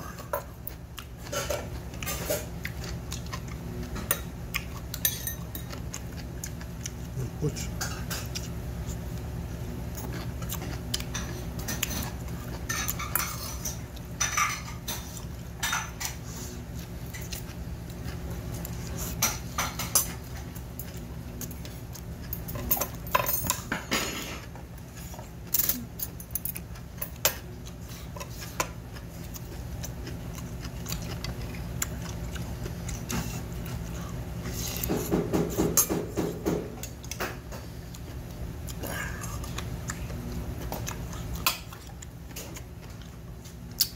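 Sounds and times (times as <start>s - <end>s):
steady low hum: 0.0s - 43.9s
utensils clinking on metal bowl: 4.9s - 5.9s, 12.7s - 16.2s, 22.3s - 24.5s, 25.5s - 27.4s
mouth sounds of eating: 5.8s - 9.2s, 37.8s - 43.9s.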